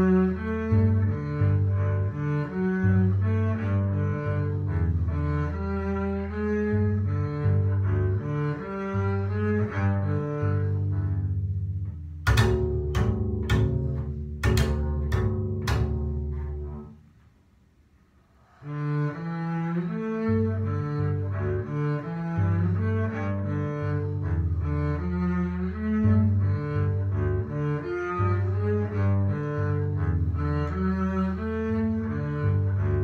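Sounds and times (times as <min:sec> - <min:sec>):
double bass struck notes: 0:00.0 - 0:17.0
double bass bowed notes: 0:00.0 - 0:17.4, 0:18.4 - 0:33.0.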